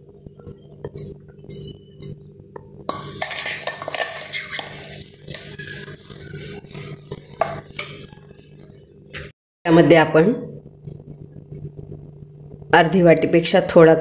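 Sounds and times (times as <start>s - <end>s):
spoon scraping metal jar: 0.9s - 2.2s, 2.9s - 8.1s.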